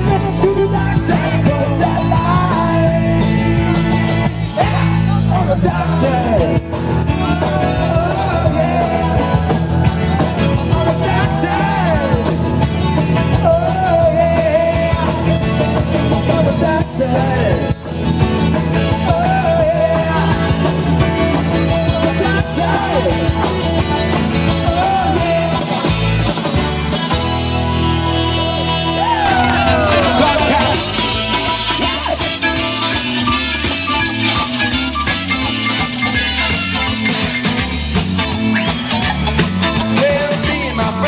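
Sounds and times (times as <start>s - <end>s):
man singing: 0.0s - 26.2s, 29.2s - 33.2s, 39.6s - 41.0s
electric guitar: 0.0s - 41.0s
live rock band playing: 0.0s - 41.0s.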